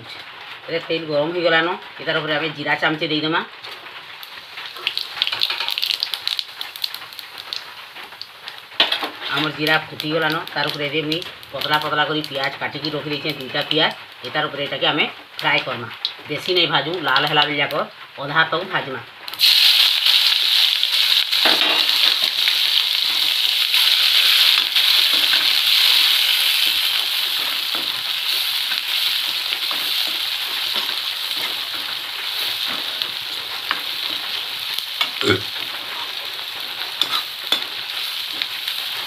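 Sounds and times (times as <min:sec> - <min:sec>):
onions sizzling in hot oil: 0:00.0 - 0:39.0
spatula stirring: 0:23.0 - 0:39.0.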